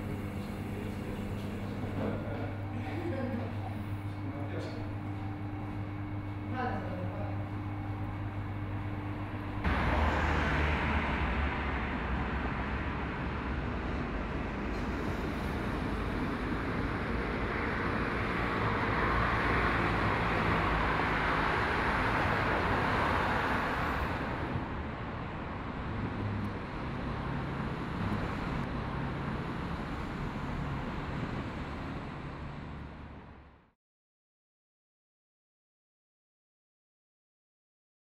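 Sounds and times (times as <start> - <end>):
road traffic passing: 0.0 - 33.7.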